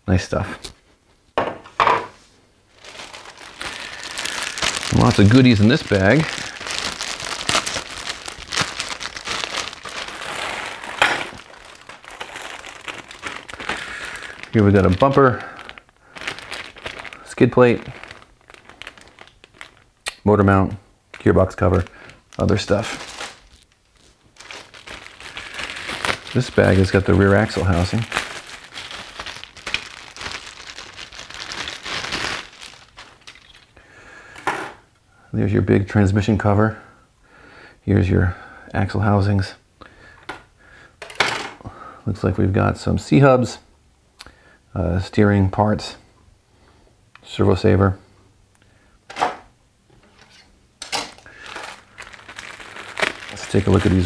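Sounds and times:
plastic bags crinkling: 0:02.7 - 0:34.6, 0:49.9 - 0:54.0
plastic parts shifting: 0:02.8 - 0:19.8, 0:21.1 - 0:33.8, 0:41.0 - 0:41.6, 0:49.1 - 0:54.0.

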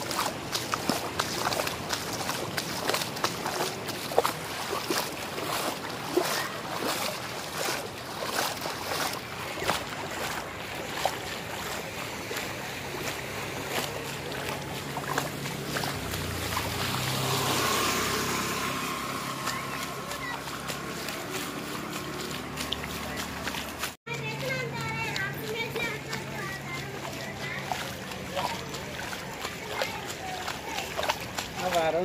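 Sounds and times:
footsteps splashing through water: 0:00.0 - 0:32.0
motor scooter engine passing: 0:11.7 - 0:32.0.

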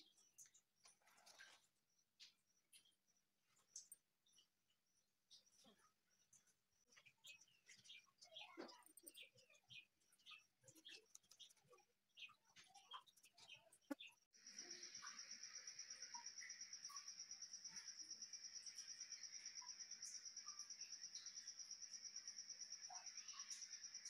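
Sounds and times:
cricket chirping: 0:14.0 - 0:24.0.

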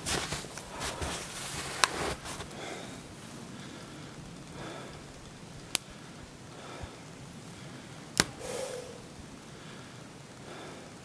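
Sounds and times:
shuffling and rustling: 0:00.0 - 0:03.4
sharp snaps: 0:04.4 - 0:06.0, 0:08.1 - 0:09.0.

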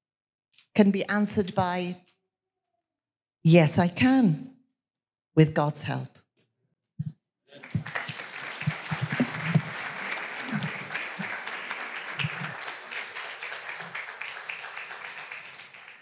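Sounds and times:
congregation applauding: 0:07.6 - 0:16.0.

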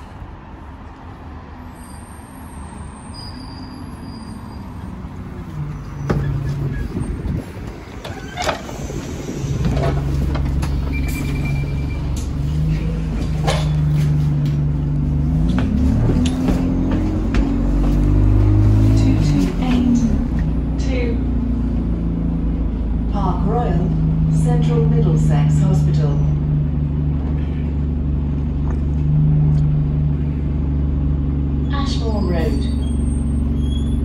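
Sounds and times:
bus engine running: 0:00.0 - 0:34.0
bus clunks and knocks: 0:05.8 - 0:20.6
short beep: 0:10.9 - 0:12.1.

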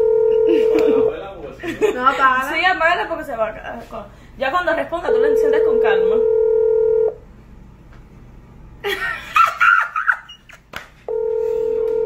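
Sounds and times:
call ringback tone beeping: 0:00.0 - 0:01.0, 0:05.1 - 0:07.2, 0:11.1 - 0:12.0
women's voices: 0:01.9 - 0:06.3.

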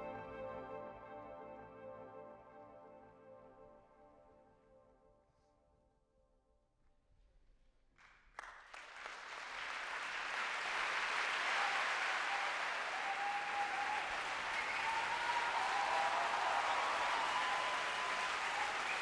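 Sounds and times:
audience applause: 0:08.4 - 0:19.0
audience cheering: 0:09.2 - 0:19.0.

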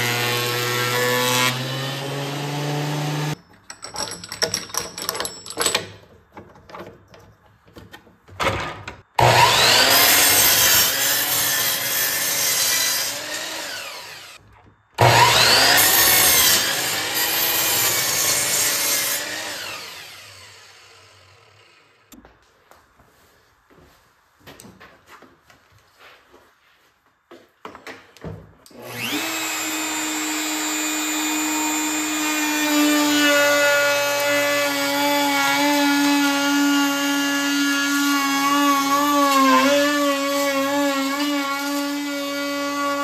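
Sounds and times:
miter saw cutting wood: 0:00.0 - 0:03.4, 0:09.2 - 0:14.4, 0:15.0 - 0:22.2, 0:28.7 - 0:43.0.

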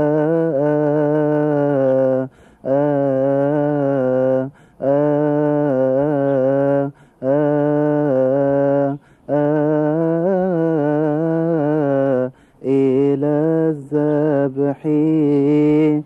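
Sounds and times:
man chanting a hymn: 0:00.0 - 0:16.0
man breathing: 0:02.3 - 0:02.7, 0:04.5 - 0:04.8, 0:06.9 - 0:07.2, 0:09.0 - 0:09.3, 0:12.3 - 0:12.6.

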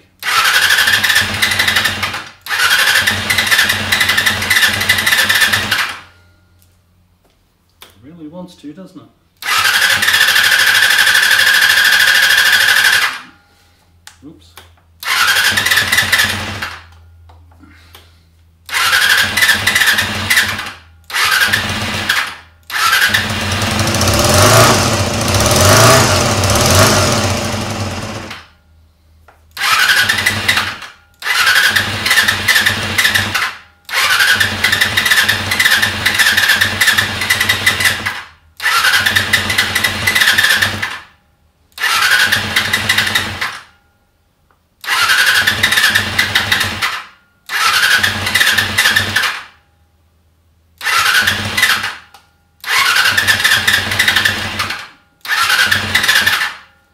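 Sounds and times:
motorcycle electric starter cranking: 0:00.2 - 0:06.1, 0:09.4 - 0:13.2, 0:15.0 - 0:17.0, 0:18.7 - 0:28.6, 0:29.5 - 0:43.7, 0:44.8 - 0:49.6, 0:50.8 - 0:56.7.

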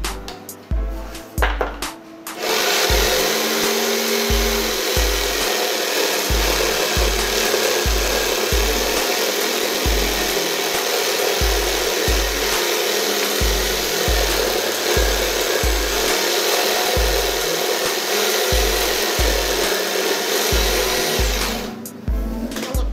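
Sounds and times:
jigsaw cutting board: 0:01.4 - 0:21.8.

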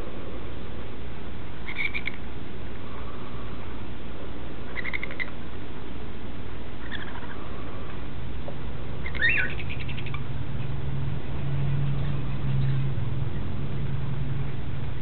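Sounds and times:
steady low hum: 0:00.0 - 0:15.0
chicks making rattling calls: 0:01.6 - 0:02.3, 0:04.6 - 0:05.5, 0:06.8 - 0:08.0, 0:09.0 - 0:13.6.

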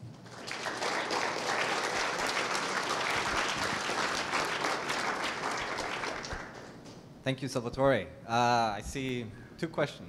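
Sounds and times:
audience applauding: 0:00.0 - 0:06.9.

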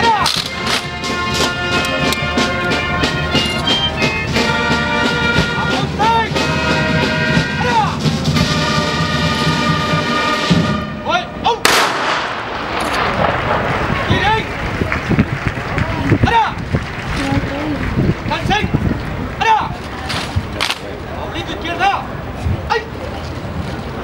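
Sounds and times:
military brass band music: 0:00.0 - 0:18.8
rifle volley: 0:11.5 - 0:17.1.

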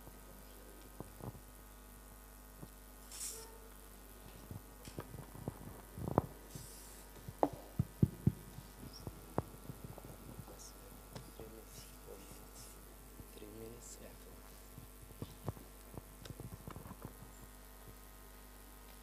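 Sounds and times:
sound system hum: 0:00.0 - 0:19.0
microphone handling thumps: 0:04.4 - 0:06.4, 0:07.1 - 0:11.5, 0:14.7 - 0:18.0.

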